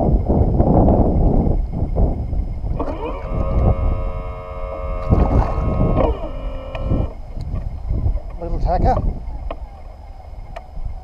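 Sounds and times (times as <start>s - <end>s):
wind noise on microphone: 0.0s - 11.0s
electric motor whining: 2.7s - 11.0s.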